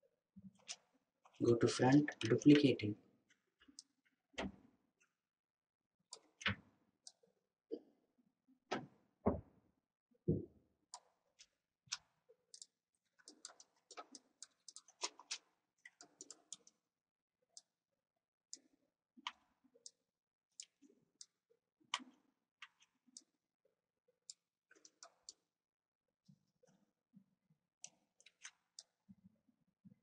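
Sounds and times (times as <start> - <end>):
mouse and keyboard clicks: 11.9 - 16.8.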